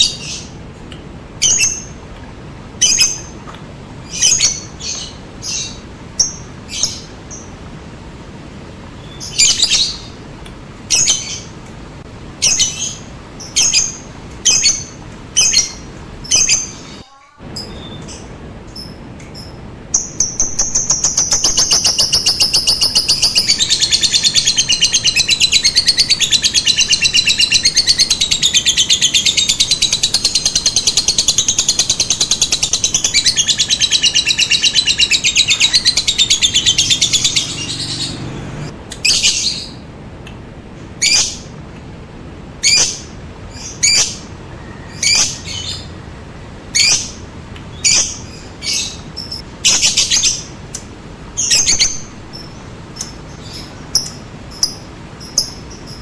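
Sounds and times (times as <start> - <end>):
lovebird rattling trill: 20.0 - 28.3.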